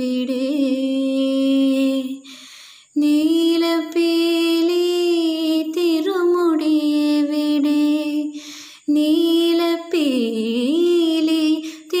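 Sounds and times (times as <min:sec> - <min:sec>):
quick breath: 0:02.2 - 0:03.0, 0:08.3 - 0:08.9.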